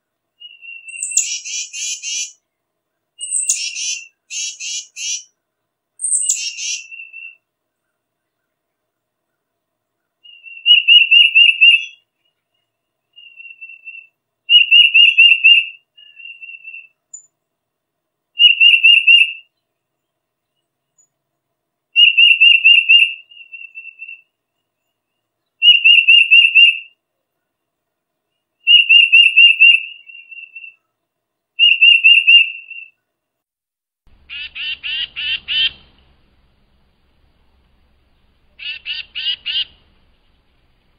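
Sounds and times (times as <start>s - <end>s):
bird whistling song: 0.4s - 2.4s, 3.2s - 5.3s, 6.0s - 7.4s, 10.2s - 12.4s, 13.1s - 17.3s, 18.4s - 19.6s, 22.0s - 24.3s, 25.5s - 27.0s, 28.6s - 30.9s, 31.6s - 33.0s, 34.2s - 36.7s, 37.5s - 40.9s
raspy bird call: 0.4s - 2.4s, 3.2s - 5.3s, 6.0s - 7.4s, 34.2s - 36.2s, 37.8s - 40.9s.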